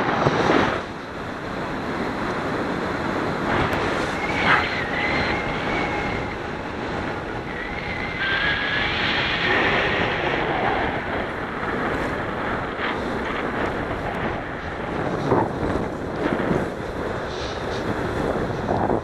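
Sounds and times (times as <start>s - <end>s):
wind buffeting microphone: 0.0s - 19.0s
faint thin whistling: 4.1s - 6.4s.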